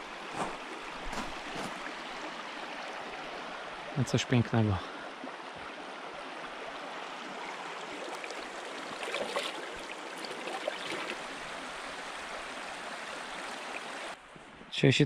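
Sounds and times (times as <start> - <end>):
river water flowing: 0.0 - 14.6.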